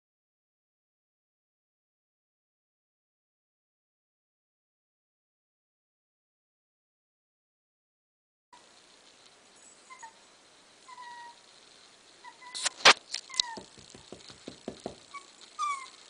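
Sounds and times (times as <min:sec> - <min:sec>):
puppy whimpering: 0:09.8 - 0:10.2, 0:10.8 - 0:11.4, 0:12.2 - 0:13.8, 0:15.1 - 0:16.0
light taps: 0:12.6 - 0:15.1
sharp clicks: 0:12.6 - 0:15.2.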